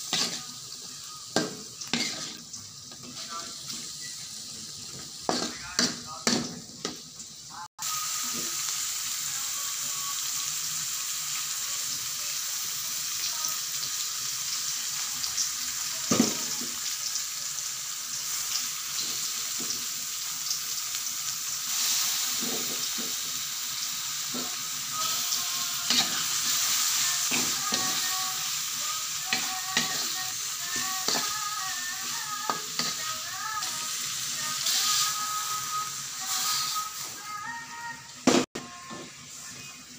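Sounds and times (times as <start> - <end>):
metal spatula scraping a pan: 0.0 - 0.8, 1.4 - 4.2, 24.4 - 28.2, 29.3 - 31.4
shrimp sizzling in a wok: 0.0 - 39.9.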